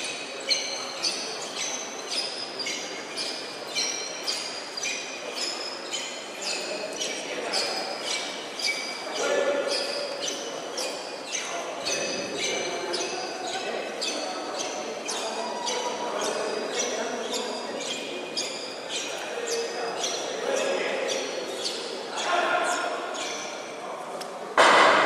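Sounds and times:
murmur of voices: 0.0 - 25.0.

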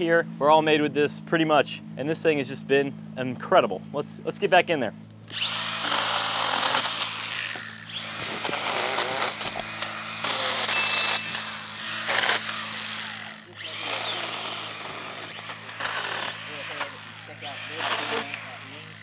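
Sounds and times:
pruning saw cutting branches: 5.2 - 19.0.

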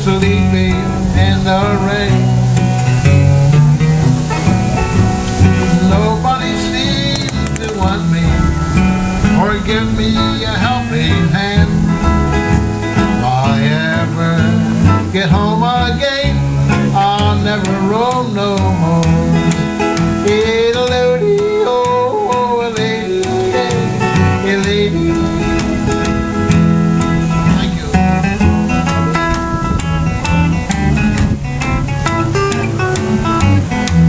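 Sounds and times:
man singing: 0.0 - 2.6, 5.4 - 29.3
acoustic guitar: 0.0 - 34.0
plucked upright bass: 0.0 - 34.0.

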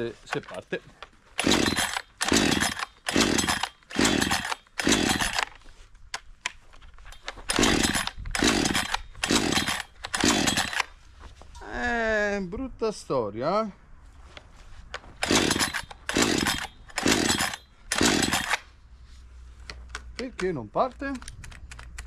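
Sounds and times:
chainsaw starter cord yanked: 0.0 - 10.9, 15.2 - 18.7, 19.8 - 22.0
engine turning over: 1.4 - 5.5, 7.5 - 10.9.

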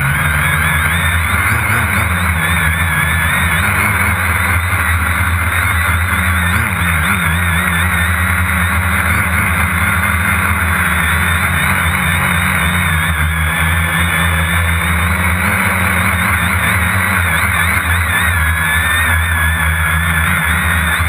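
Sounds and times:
drone motors humming and whining: 0.0 - 21.0.

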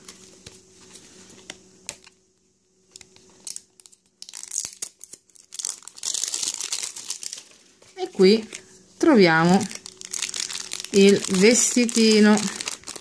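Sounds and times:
crinkly plastic rustling: 3.0 - 13.0.

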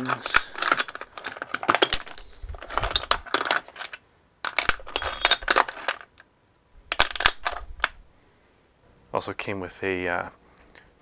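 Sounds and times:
steel tools clinking in a box: 0.0 - 6.2.

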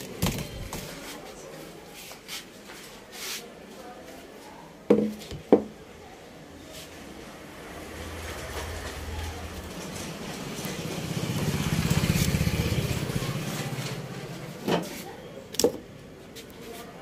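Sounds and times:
passing vehicle engine: 6.9 - 14.6.

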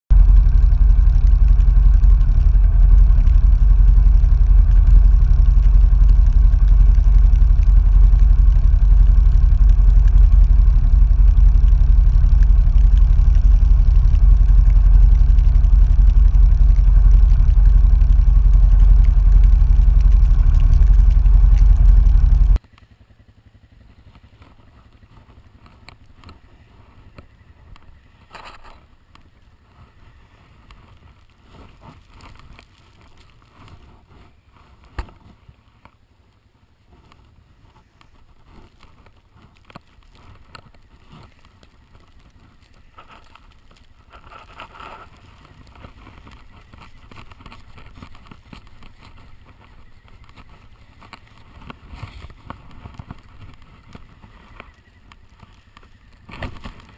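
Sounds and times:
faint wind noise: 0.1 - 22.6
atv engine running: 0.1 - 56.9.

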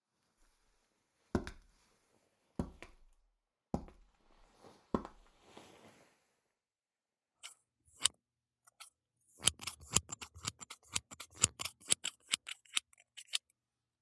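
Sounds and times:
scissors snipping hair: 8.7 - 13.5.

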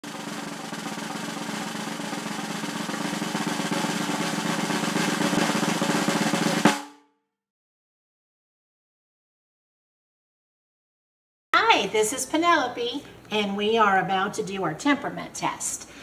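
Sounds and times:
loud snare drum hit: 0.0 - 7.0
snare drum roll: 0.0 - 7.0.

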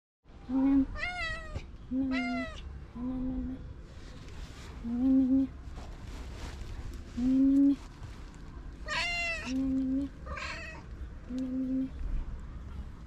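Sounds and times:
cat meowing low: 0.5 - 2.6, 8.8 - 9.6, 10.2 - 10.9
high-pitched cat meows: 0.5 - 2.6, 8.8 - 9.6.

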